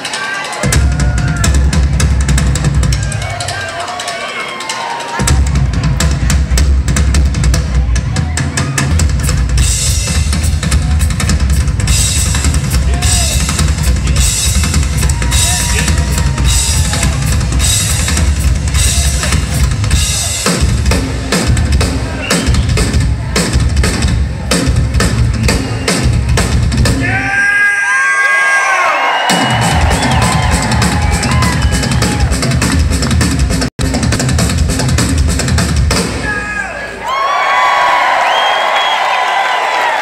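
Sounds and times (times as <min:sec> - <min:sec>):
crowd cheering and whooping: 0:00.0 - 0:06.1, 0:14.2 - 0:19.4, 0:27.0 - 0:32.8, 0:36.3 - 0:40.0
rock drum solo: 0:00.0 - 0:27.9, 0:29.1 - 0:36.8.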